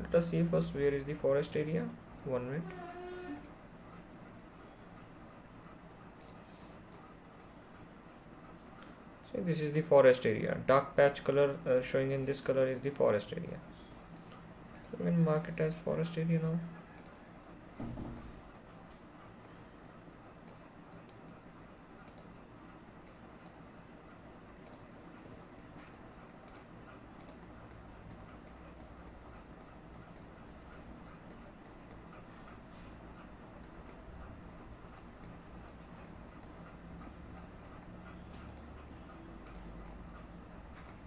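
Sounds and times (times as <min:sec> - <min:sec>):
low steady hum: 0:00.0 - 0:41.0
computer mouse clicks: 0:03.2 - 0:03.6, 0:06.2 - 0:07.6, 0:14.1 - 0:15.0, 0:16.9 - 0:17.2, 0:18.1 - 0:19.0, 0:20.4 - 0:21.4, 0:22.0 - 0:22.4, 0:24.6 - 0:24.9, 0:25.5 - 0:32.2, 0:33.6 - 0:34.2, 0:34.9 - 0:41.0.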